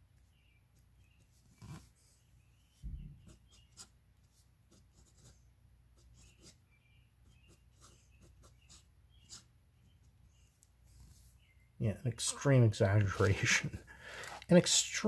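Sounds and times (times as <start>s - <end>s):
soft low thump: 2.8s - 3.3s
fountain pen scratching on paper: 4.7s - 5.4s, 6.0s - 6.6s, 7.2s - 9.5s.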